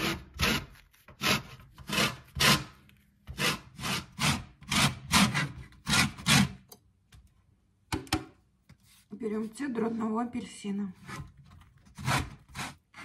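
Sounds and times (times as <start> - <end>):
lemon scraping on metal grater: 11.8 - 13.0.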